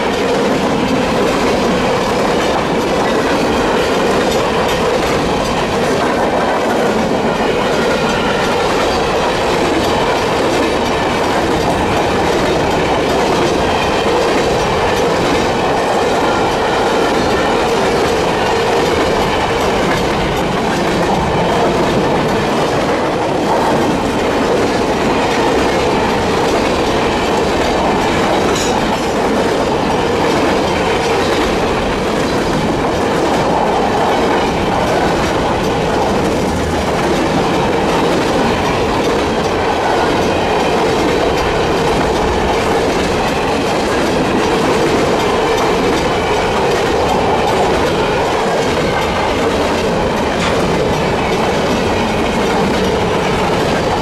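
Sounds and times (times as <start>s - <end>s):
freight train rolling past: 0.0s - 54.0s
steel wheels clacking on rail joints: 0.0s - 54.0s
crossing bell ringing: 6.8s - 23.2s, 24.8s - 32.7s.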